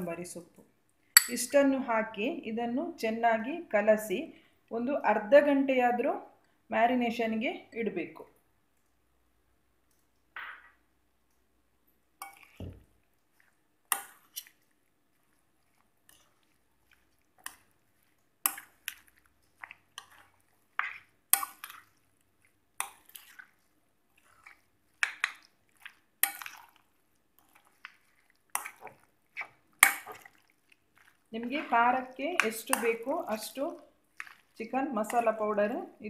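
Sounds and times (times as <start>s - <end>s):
wet squelching of marinated chicken: 12.2s - 35.8s.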